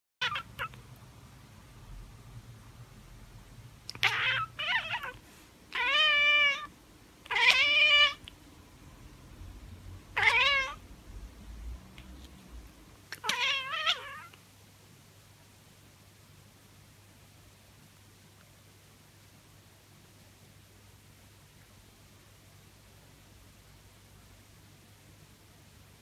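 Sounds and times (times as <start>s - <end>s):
cat chirping and chattering: 0.2s - 1.0s, 3.8s - 8.4s, 10.1s - 10.9s, 13.1s - 14.4s.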